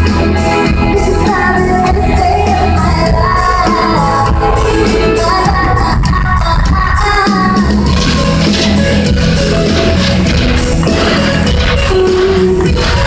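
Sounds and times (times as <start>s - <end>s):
live pop-rock band: 0.0s - 13.0s
woman singing: 0.4s - 8.2s.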